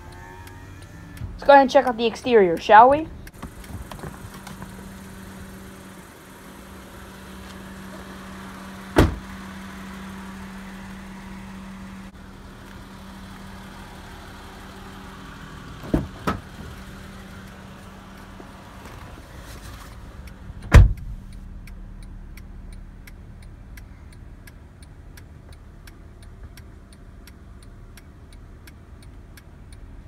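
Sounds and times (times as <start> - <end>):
car engine idling: 0.0 - 30.0
car door slamming: 8.8 - 9.5, 15.8 - 16.7, 20.6 - 21.2.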